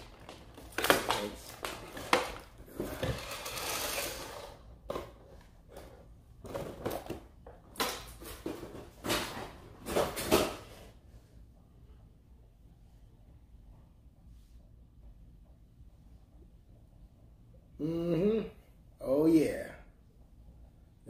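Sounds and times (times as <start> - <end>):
plastic packaging crackling: 0.0 - 2.5.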